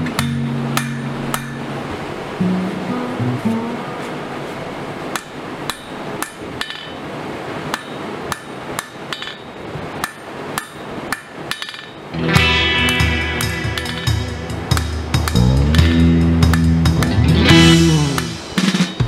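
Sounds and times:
music: 0.0s - 1.8s, 2.4s - 4.1s, 12.2s - 19.0s
hammer striking metal on anvil: 0.1s - 1.7s, 5.1s - 7.0s, 7.7s - 12.1s, 12.9s - 19.0s.

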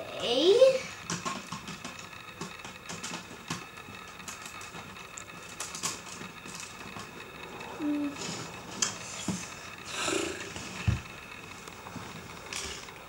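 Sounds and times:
plastic bricks clicking and rattling: 1.0s - 7.2s.

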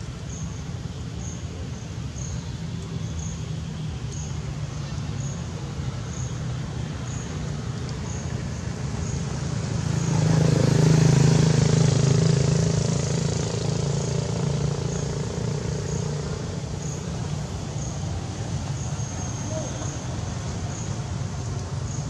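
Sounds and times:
vehicle engine passing by: 6.8s - 22.0s.

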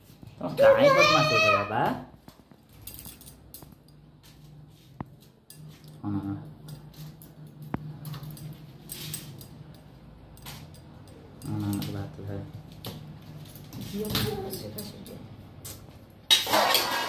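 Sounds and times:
steel plates and utensils clinking: 16.3s - 17.0s.

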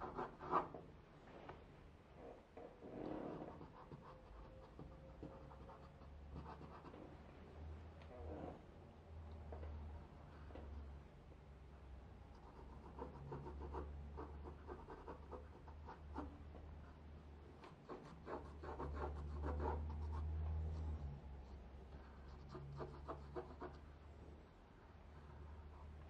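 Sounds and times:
pencil scratching on paper: 0.0s - 0.8s, 3.3s - 7.0s, 12.4s - 16.5s, 17.6s - 23.9s
faint low hum: 0.0s - 26.0s.

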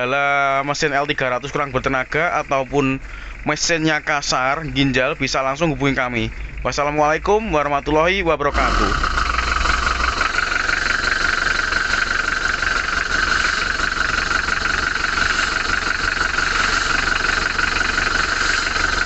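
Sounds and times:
diesel engine idling: 0.0s - 19.0s
high-pitched drone: 8.4s - 19.0s.

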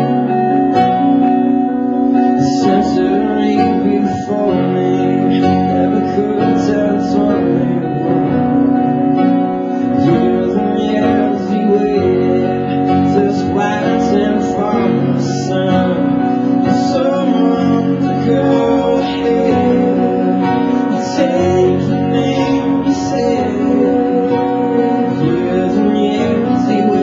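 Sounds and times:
acoustic guitar: 0.0s - 27.0s
keyboard piano: 0.0s - 27.0s.

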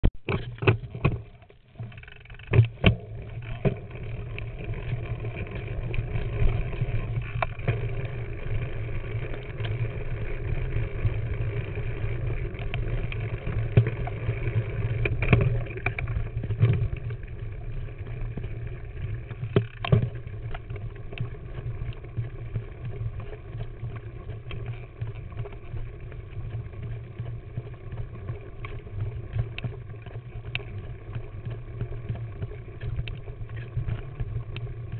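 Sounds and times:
bike tyre and frame rumble: 0.2s - 34.9s.

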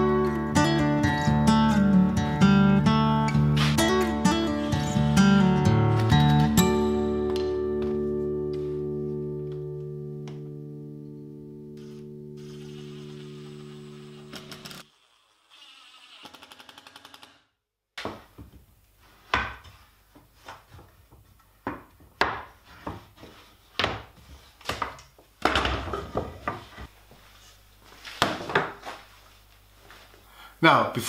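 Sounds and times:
cordless drill driving a screw: 12.4s - 17.4s.

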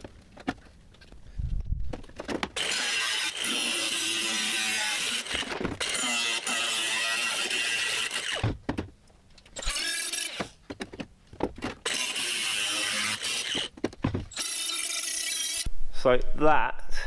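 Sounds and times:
die grinder cutting steel: 2.6s - 8.4s, 9.6s - 10.5s, 11.8s - 13.7s, 14.3s - 15.7s.

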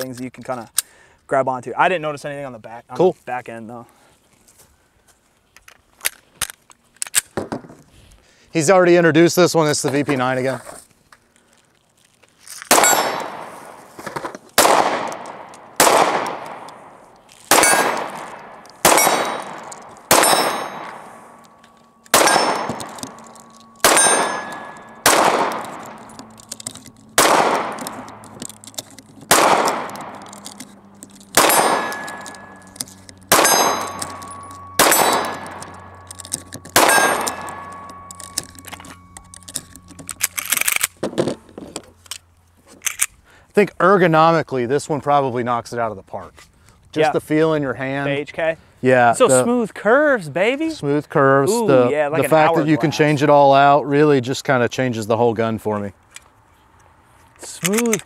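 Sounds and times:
pistol shots: 12.7s - 13.8s, 14.6s - 21.5s, 22.1s - 28.4s, 29.2s - 39.4s
steel targets ringing: 12.8s - 13.5s, 17.5s - 28.3s, 29.3s - 40.2s.

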